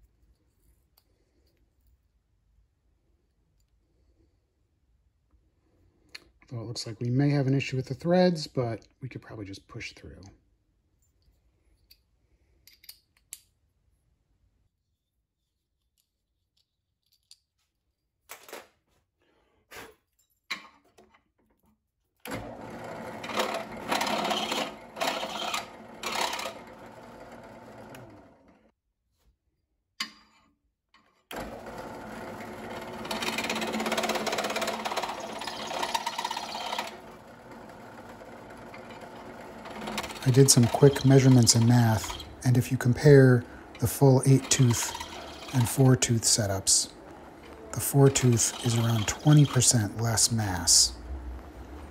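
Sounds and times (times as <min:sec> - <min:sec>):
drill press countersinking metal: 0:22.3 - 0:26.6, 0:31.3 - 0:50.2.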